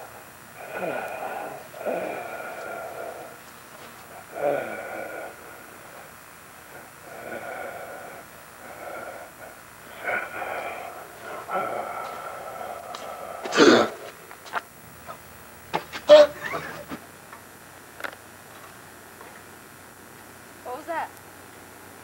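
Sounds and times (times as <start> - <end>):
harsh rasping breath: 0.0 - 14.2
person wheezing: 0.6 - 3.4, 4.2 - 5.6, 6.7 - 14.1, 16.1 - 16.9.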